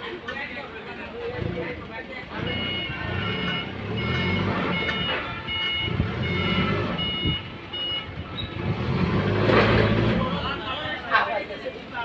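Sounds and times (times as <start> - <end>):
forklift engine running: 1.0 - 10.8
reversing alarm beeping: 2.4 - 8.5.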